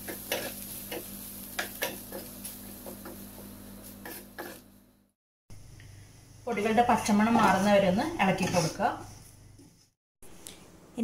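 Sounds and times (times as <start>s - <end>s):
spatula clacking and scraping pan: 0.0s - 2.3s, 4.0s - 4.6s, 7.3s - 8.9s
light sizzling: 0.0s - 4.9s.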